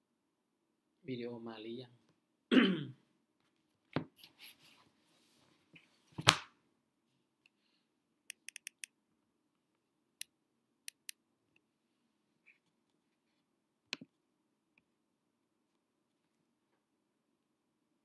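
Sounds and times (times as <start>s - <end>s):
person clearing throat: 2.5s - 3.0s
computer mouse clicks: 8.3s - 8.9s.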